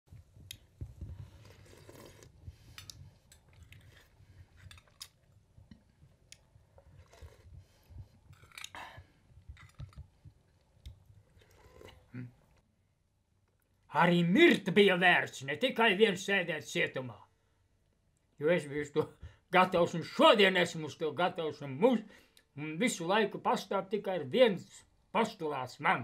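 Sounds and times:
man chewing: 0.4 - 12.6.

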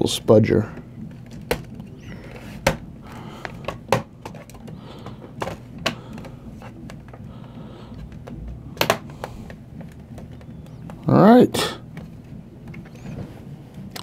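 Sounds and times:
plastic clips snapping: 7.9 - 11.0.

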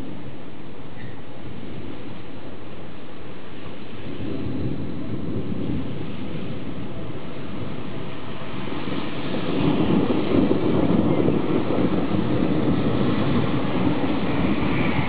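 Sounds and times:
rolling thunder rumble: 0.0 - 15.0
steady hiss: 0.0 - 15.0.

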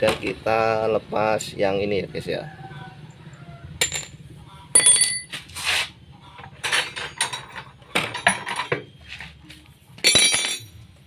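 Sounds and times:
metal tools clinking: 3.8 - 5.4, 6.6 - 8.9, 10.0 - 10.9
metal scrape: 5.3 - 6.0.

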